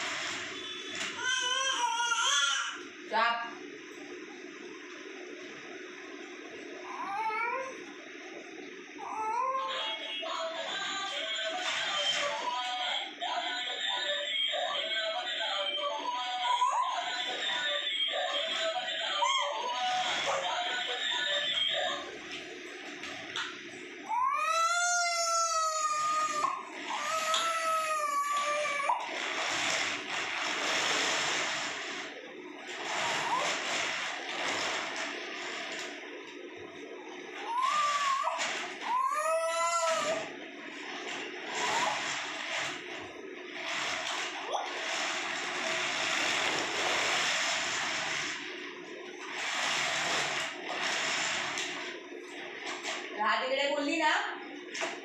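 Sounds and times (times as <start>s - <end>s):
plastic wheels rolling on tiles: 9.6s - 36.4s, 37.3s - 53.2s
baby squealing: 37.5s - 40.2s.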